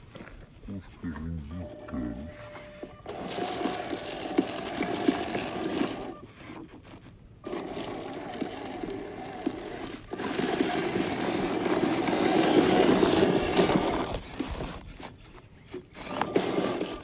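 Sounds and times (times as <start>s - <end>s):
small electric motor whirring: 2.3s - 17.0s.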